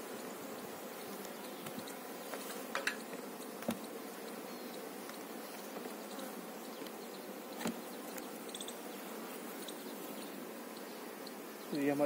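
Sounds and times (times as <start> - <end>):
honeybees buzzing: 0.0 - 12.0.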